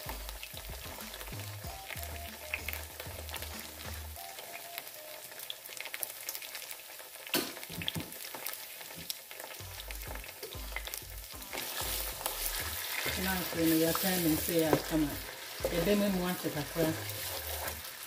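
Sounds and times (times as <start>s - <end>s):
onions sizzling in oil: 0.0s - 18.0s
wooden spoon scraping pot: 11.5s - 17.9s.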